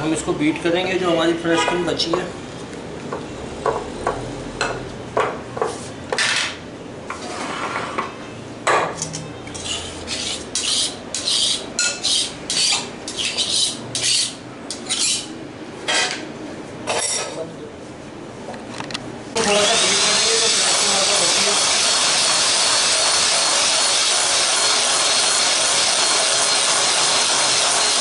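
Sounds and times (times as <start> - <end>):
spatula scraping glass bowl: 9.5 - 15.3.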